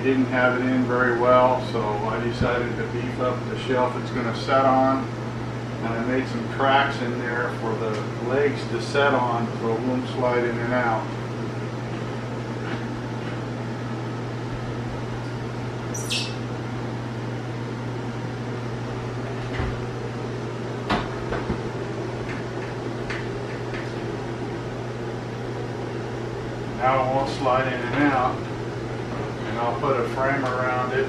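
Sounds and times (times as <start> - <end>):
steady low hum: 0.0 - 31.0
microwave squeaking: 15.2 - 16.5.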